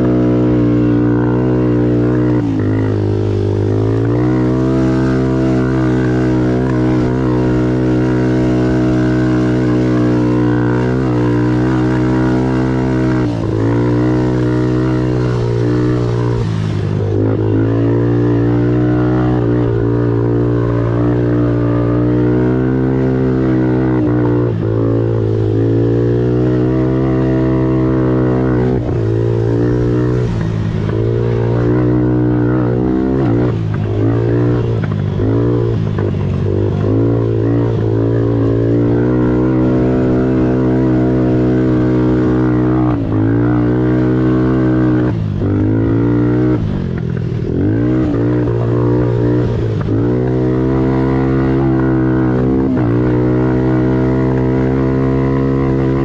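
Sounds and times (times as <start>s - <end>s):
quad bike engine revving: 0.0s - 56.0s.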